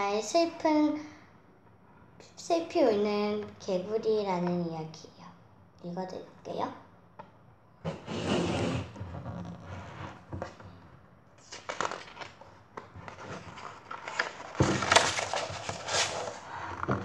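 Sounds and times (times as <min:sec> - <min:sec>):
book pages rustling: 0:11.4 - 0:17.0.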